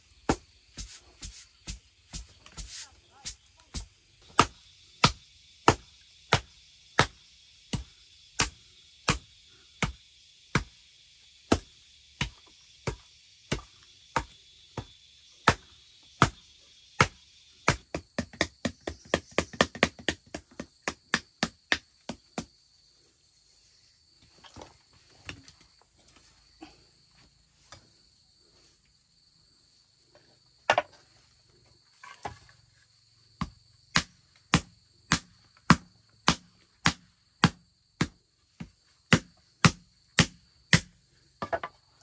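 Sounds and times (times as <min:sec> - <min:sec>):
insects trilling: 0:00.0 - 0:42.0.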